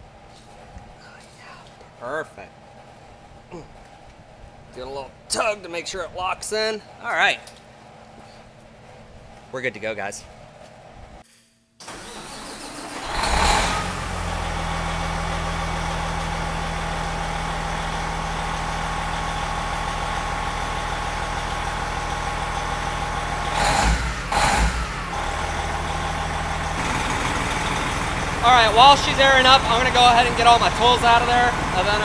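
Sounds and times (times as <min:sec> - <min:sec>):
diesel engine cranking and starting: 0:11.8 - 0:32.0
diesel engine idling: 0:11.8 - 0:32.0.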